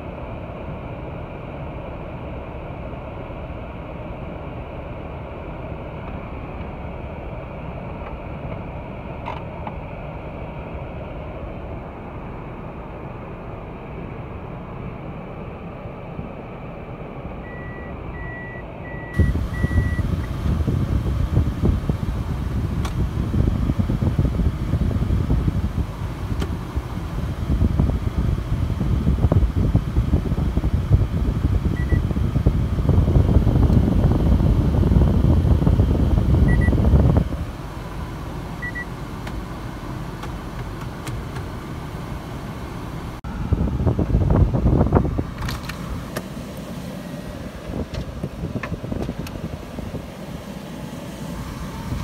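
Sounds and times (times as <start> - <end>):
car rumbling under way: 0.0 - 52.0
short electronic beeps: 17.4 - 20.0, 31.8 - 32.0, 36.5 - 36.8, 38.6 - 38.9
faint beeps: 31.8 - 32.0.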